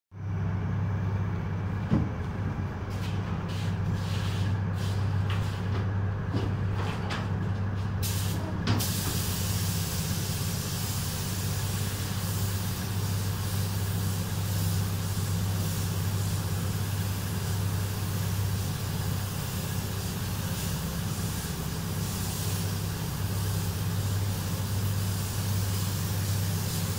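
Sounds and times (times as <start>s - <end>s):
steady low hum: 0.2s - 26.9s
paint spray gun hissing: 8.0s - 26.9s.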